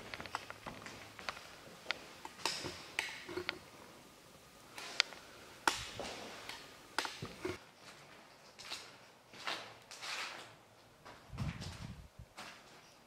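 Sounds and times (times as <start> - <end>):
footsteps on tiled floor: 7.2 - 13.0.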